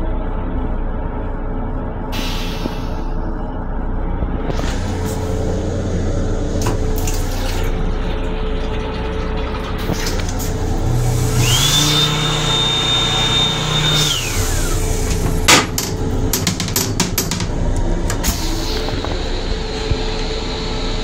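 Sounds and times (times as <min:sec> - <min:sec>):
railcar low rumble: 0:00.0 - 0:11.1, 0:17.4 - 0:21.0.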